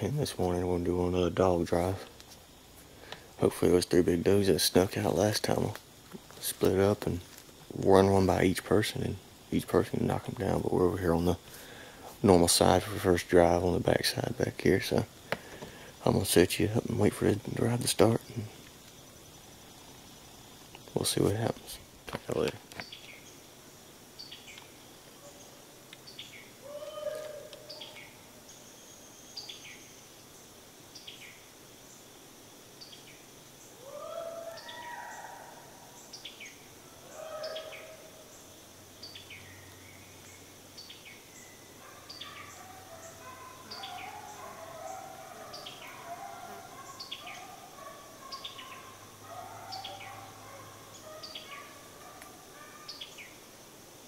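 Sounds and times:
bird chirping: 0:14.8 - 0:23.5, 0:24.2 - 0:32.1, 0:32.8 - 0:53.4
hounds howling and baying: 0:26.6 - 0:28.3, 0:33.8 - 0:36.0, 0:36.8 - 0:38.3, 0:41.7 - 0:53.0.

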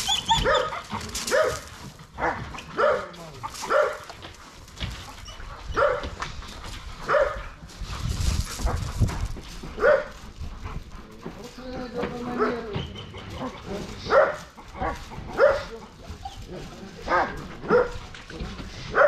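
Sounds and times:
dog barking: 0:00.4 - 0:04.1, 0:05.8 - 0:06.2, 0:07.1 - 0:07.5, 0:09.8 - 0:10.2, 0:12.3 - 0:12.7, 0:14.0 - 0:15.8, 0:17.1 - 0:18.0.

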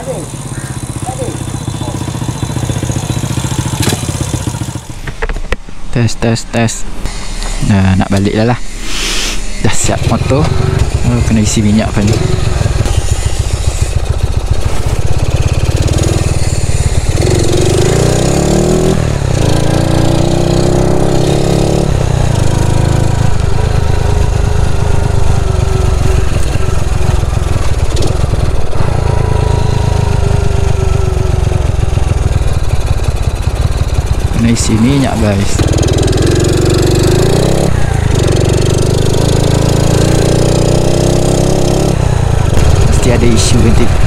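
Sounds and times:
moped engine accelerating: 0:00.0 - 0:05.6, 0:07.1 - 0:44.0.

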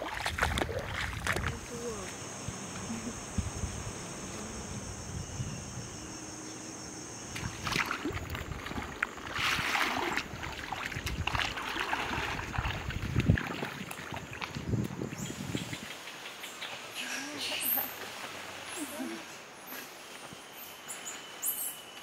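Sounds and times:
boots wading through water: 0:00.0 - 0:02.0, 0:07.4 - 0:15.0.

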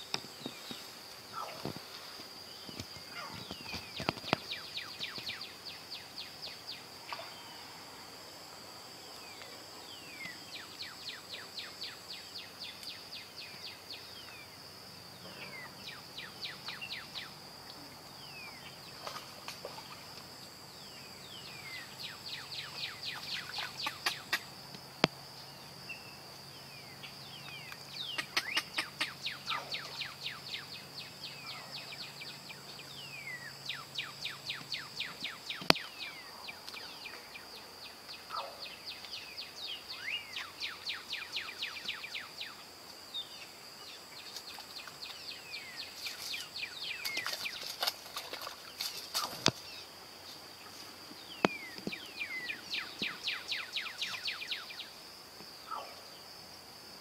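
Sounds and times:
fast repeated chirping calls: 0:28.1 - 0:29.8.

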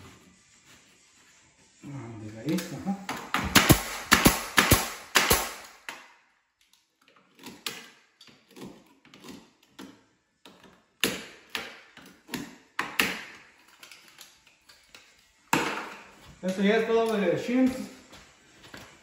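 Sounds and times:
nail gun firing into wood: 0:03.1 - 0:06.0.

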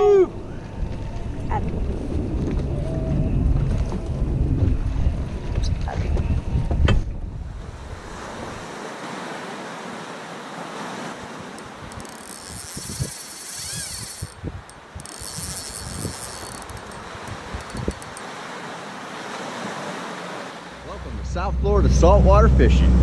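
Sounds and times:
wind: 0:00.0 - 0:23.0
sea water rushing: 0:07.3 - 0:23.0.

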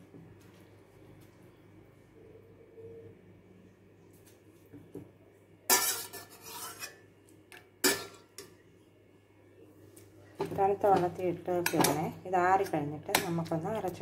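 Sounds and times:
metal ladle clanking on pot: 0:05.7 - 0:06.9, 0:07.8 - 0:08.5, 0:10.9 - 0:13.5.

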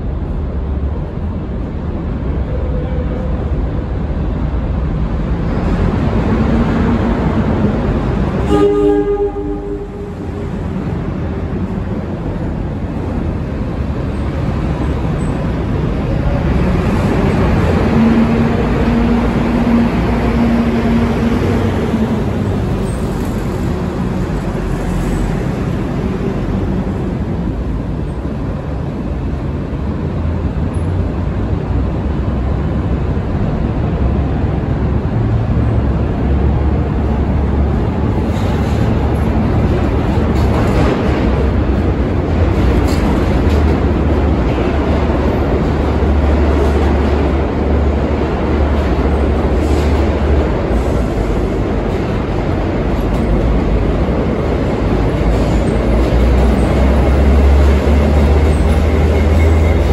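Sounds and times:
train rumbling on rails: 0:00.0 - 0:59.9
train horn blast: 0:08.4 - 0:10.6.

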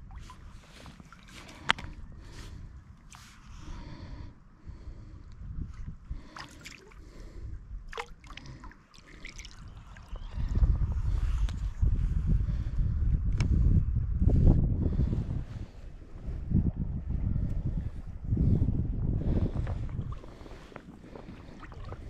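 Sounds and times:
sharp clicks and splashes: 0:00.0 - 0:02.0, 0:07.9 - 0:10.1
wind buffeting microphone: 0:00.0 - 0:08.6, 0:09.2 - 0:22.0
river water gurgling: 0:07.9 - 0:10.2.

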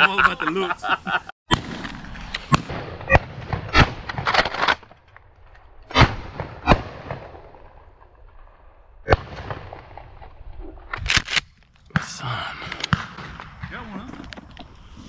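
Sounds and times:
shotgun shots: 0:01.5 - 0:04.9, 0:05.9 - 0:07.8, 0:09.1 - 0:10.2, 0:12.8 - 0:14.0.

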